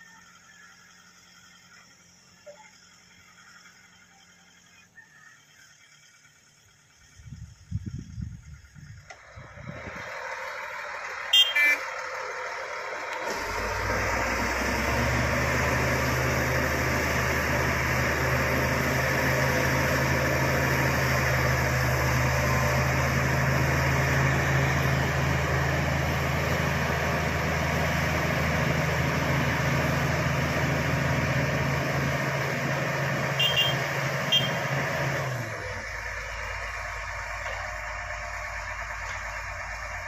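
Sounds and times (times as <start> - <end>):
bulldozer pushing soil: 0.0 - 40.0
heavy diesel engines running: 0.0 - 40.0.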